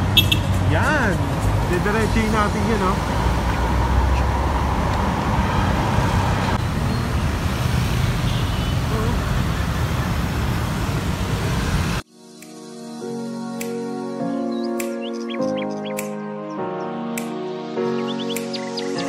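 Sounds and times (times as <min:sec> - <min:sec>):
motorcycles passing: 0:00.0 - 0:12.0
road traffic passing: 0:00.0 - 0:12.0.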